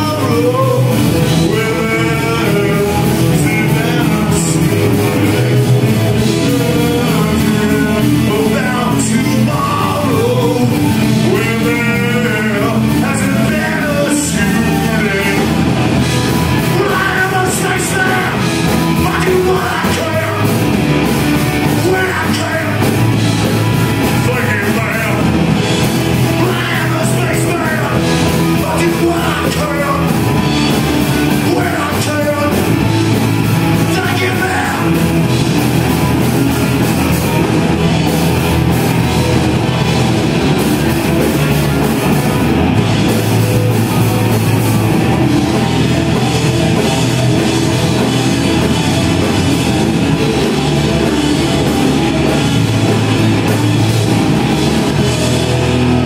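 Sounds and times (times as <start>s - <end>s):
person singing: 0.0s - 37.4s
drum kit: 0.0s - 56.0s
electric guitars through amplifiers: 0.0s - 56.0s.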